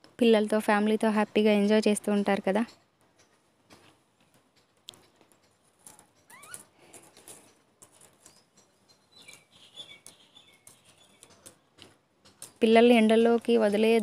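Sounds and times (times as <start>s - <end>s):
small clicks and taps: 2.6s - 12.7s.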